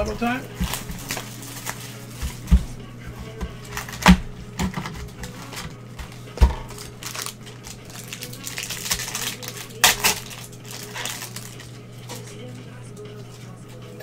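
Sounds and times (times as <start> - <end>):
cardboard rustling and crinkling: 0.0 - 11.6
steady low hum: 0.0 - 14.0.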